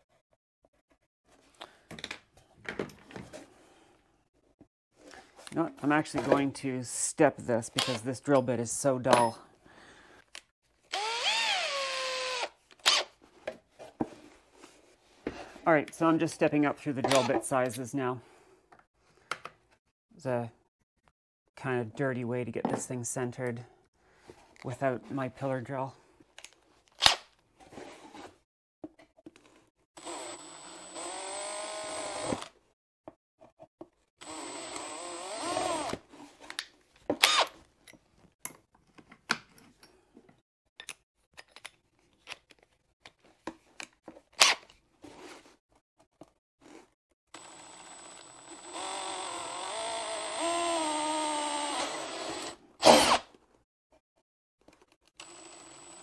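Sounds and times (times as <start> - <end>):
electric drill boring: 10.9 - 13.1, 30.0 - 32.5, 34.2 - 36.0, 47.3 - 53.2, 55.2 - 56.0.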